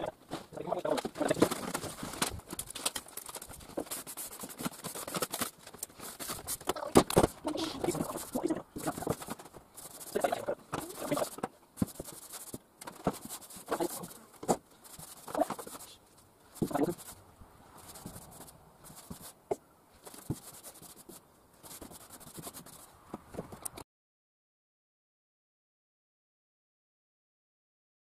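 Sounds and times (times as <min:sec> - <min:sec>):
scratchy paint strokes on metal: 0:03.2 - 0:06.7, 0:07.5 - 0:19.4, 0:20.0 - 0:23.0.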